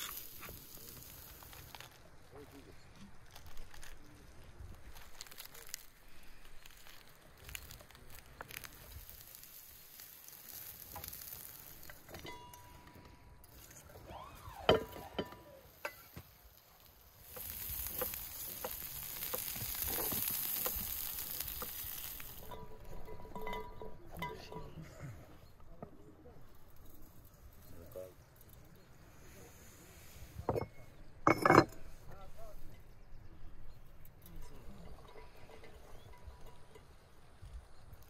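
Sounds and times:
seeds pouring into bowl: 0:00.0 - 0:02.6, 0:03.2 - 0:12.2, 0:14.7 - 0:23.7.

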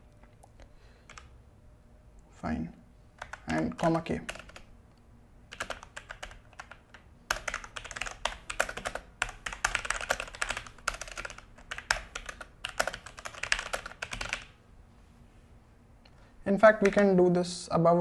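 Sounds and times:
mechanical keyboard typing: 0:03.2 - 0:04.7, 0:05.5 - 0:14.6, 0:16.7 - 0:17.0.

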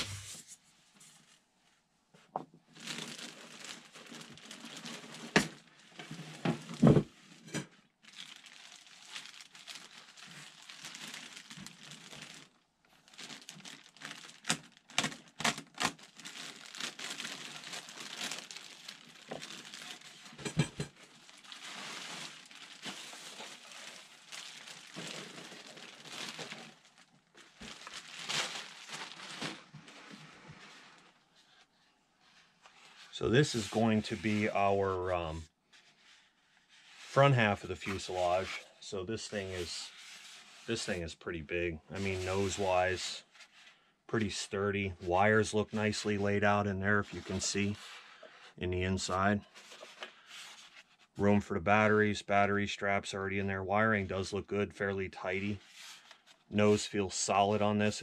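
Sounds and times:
plastic bag crinkling: 0:02.7 - 0:06.0, 0:08.0 - 0:31.2.

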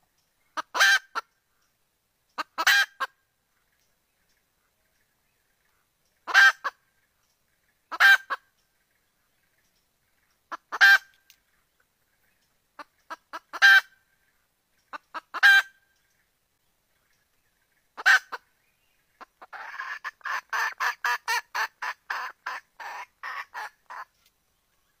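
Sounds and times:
hen clucking: 0:00.6 - 0:01.3, 0:02.4 - 0:03.2, 0:06.2 - 0:06.8, 0:07.9 - 0:08.4, 0:10.5 - 0:11.2, 0:12.8 - 0:14.0, 0:14.9 - 0:15.8, 0:18.0 - 0:18.4, 0:19.1 - 0:24.1
hen calling: 0:06.2 - 0:06.8, 0:07.9 - 0:08.5, 0:12.8 - 0:14.1, 0:14.9 - 0:15.9, 0:18.0 - 0:18.5, 0:19.1 - 0:24.1.

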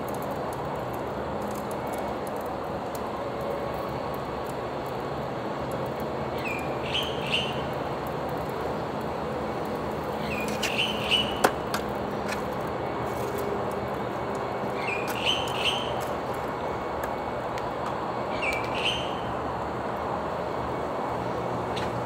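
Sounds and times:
sharp crackles and pops: 0:00.0 - 0:19.0
bird chirping: 0:06.4 - 0:07.6, 0:10.2 - 0:11.4, 0:14.8 - 0:16.0, 0:18.3 - 0:19.3.

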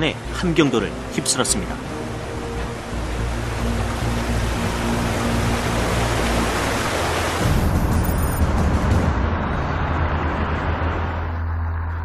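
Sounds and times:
floodwater rushing: 0:00.0 - 0:08.4
low music drone: 0:00.0 - 0:12.0.

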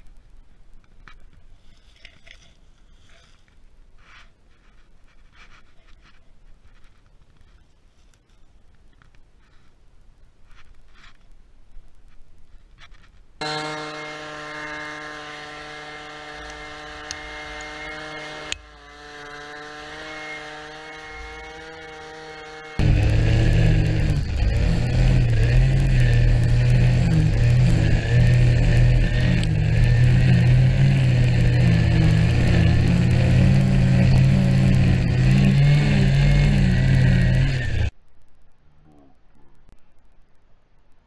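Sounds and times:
leaf blower whine: 0:13.4 - 0:37.9
string trimmer droning: 0:13.4 - 0:37.9.

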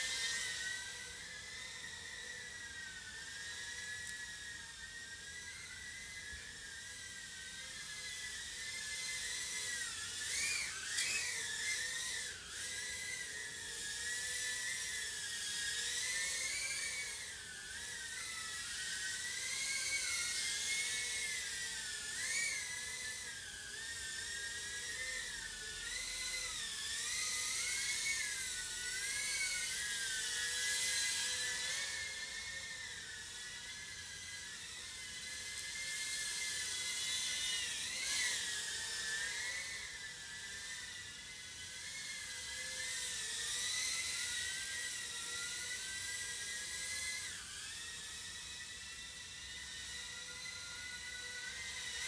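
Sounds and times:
quadcopter motors whining: 0:00.0 - 0:52.0.

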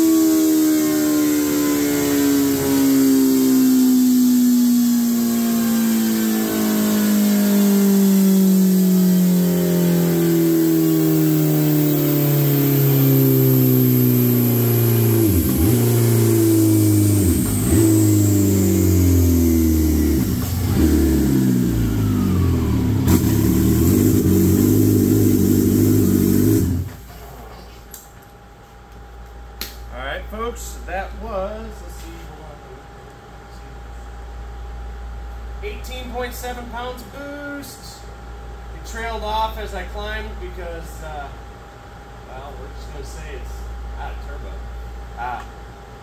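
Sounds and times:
motorcycle engine winding down: 0:00.0 - 0:27.1.

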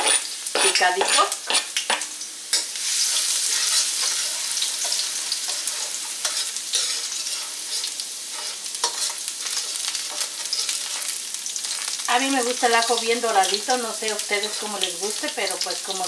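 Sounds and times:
metal spoon scraping a wok: 0:00.0 - 0:12.0
garlic sizzling in oil: 0:00.0 - 0:16.0.

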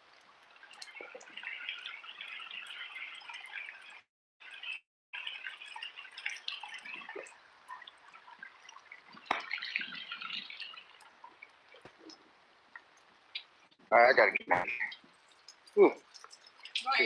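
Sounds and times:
heavy rain falling and dripping: 0:12.8 - 0:17.0.

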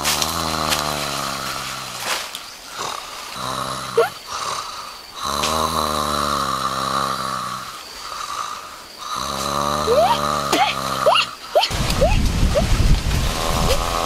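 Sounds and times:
person snoring: 0:02.8 - 0:11.7, 0:13.2 - 0:14.0.

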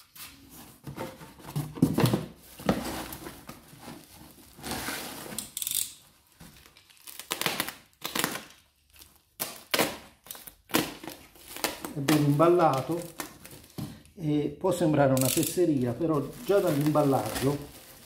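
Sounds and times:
packaging rustling and crinkling: 0:00.3 - 0:05.6, 0:06.2 - 0:14.0, 0:15.3 - 0:18.0
tape tearing: 0:04.6 - 0:13.8, 0:15.2 - 0:15.6.

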